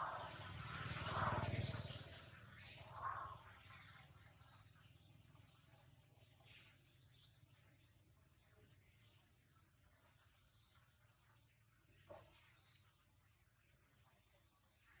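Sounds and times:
low steady hum: 0.0s - 11.9s.

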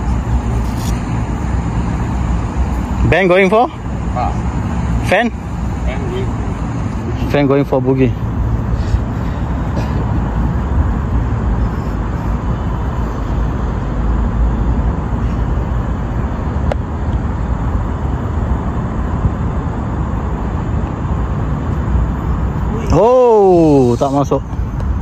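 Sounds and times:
low rumbling noise: 0.0s - 25.0s.

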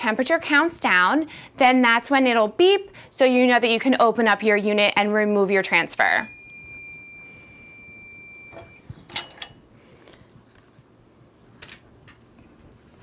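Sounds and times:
long high-pitched timer beep: 6.0s - 8.8s.

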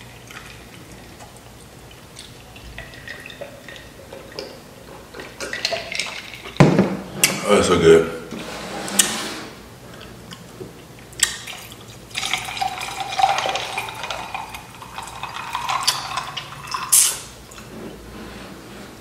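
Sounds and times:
drink pouring into a jar: 2.3s - 6.6s, 11.4s - 17.6s.

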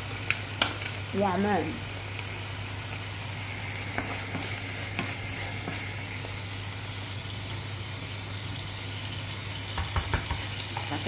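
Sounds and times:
meat sizzling in hot oil: 0.0s - 11.0s
wooden spatula knocking pot: 9.8s - 10.5s.

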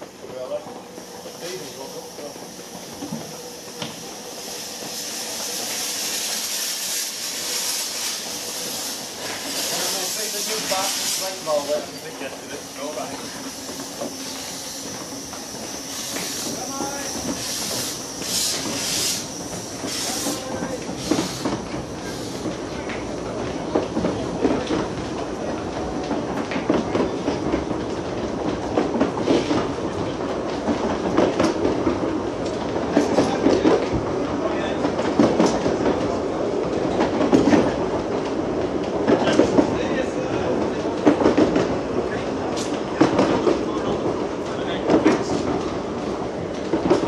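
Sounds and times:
steam locomotive hissing steam: 0.0s - 47.0s
train rumbling past: 0.0s - 47.0s
steam hissing bursts: 0.9s - 23.2s.

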